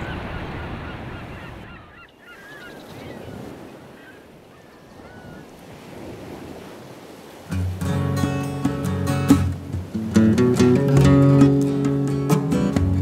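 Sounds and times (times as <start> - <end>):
birds calling: 0.0 - 5.6
surf: 0.0 - 13.0.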